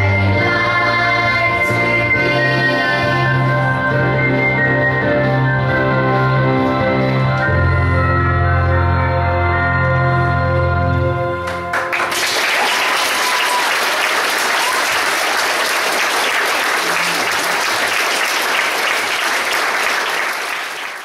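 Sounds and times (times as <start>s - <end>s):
audience applause: 11.5s - 21.0s.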